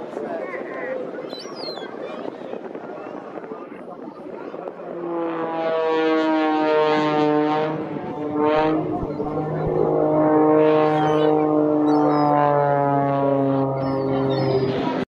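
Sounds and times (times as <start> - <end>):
propeller plane engine droning: 0.0 - 15.0.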